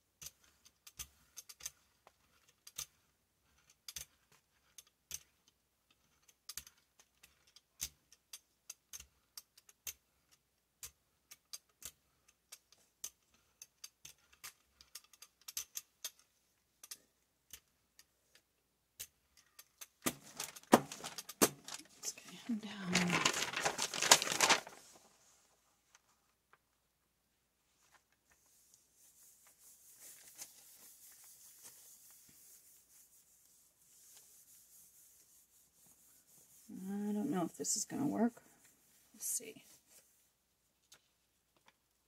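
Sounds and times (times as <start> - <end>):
paper rustling: 20.0 - 26.2, 27.7 - 34.6.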